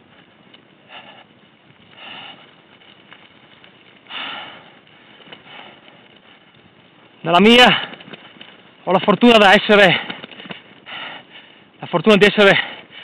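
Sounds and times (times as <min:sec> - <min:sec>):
cyclist breathing hard: 0:00.0 - 0:08.8, 0:09.8 - 0:13.0.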